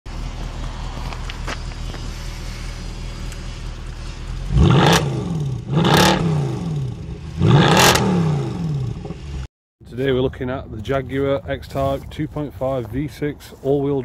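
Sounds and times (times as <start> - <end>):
car engine idling and revving: 0.1 - 9.5.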